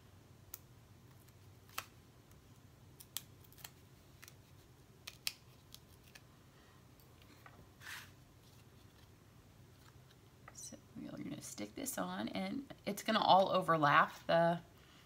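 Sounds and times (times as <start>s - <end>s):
adhesive backing peeled: 1.1s - 2.4s, 3.0s - 6.3s.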